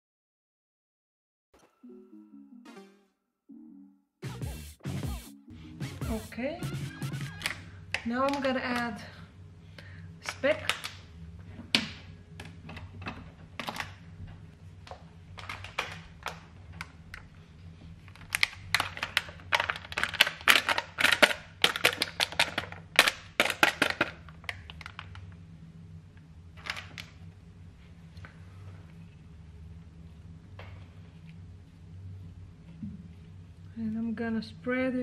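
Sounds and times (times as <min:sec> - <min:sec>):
steady low hum: 0:04.2 - 0:35.0
plastic pack crinkling: 0:15.3 - 0:25.4.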